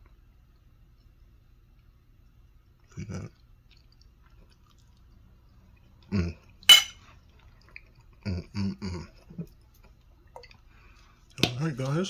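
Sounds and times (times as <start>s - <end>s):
spoon clinking on ceramic plate: 6.7s - 7.0s.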